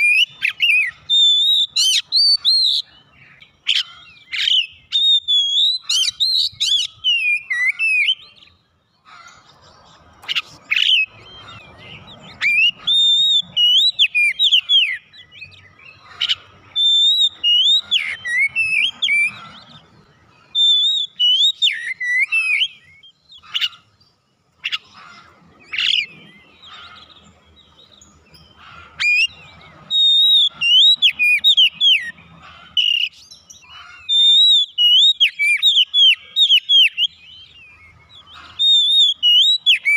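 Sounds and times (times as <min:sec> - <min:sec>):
bird singing whistled phrases: 0:00.0 - 0:08.6, 0:10.3 - 0:19.4, 0:20.4 - 0:23.7, 0:29.0 - 0:32.2, 0:32.8 - 0:39.9.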